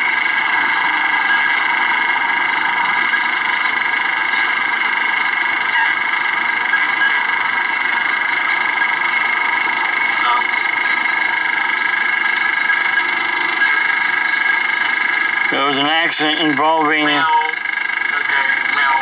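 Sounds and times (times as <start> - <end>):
car engine and tyres on road: 0.0 - 19.0
constant high whine: 0.0 - 19.0.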